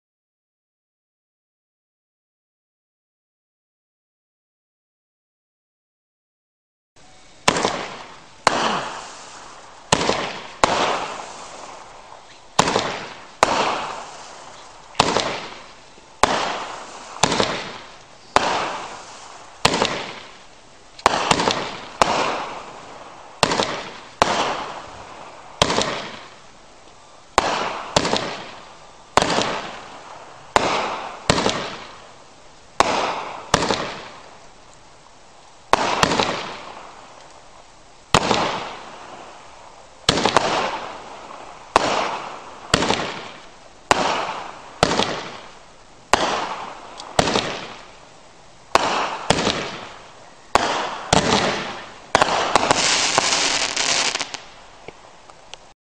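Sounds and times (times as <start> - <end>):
fireworks bangs with hiss: 7.0 - 55.7.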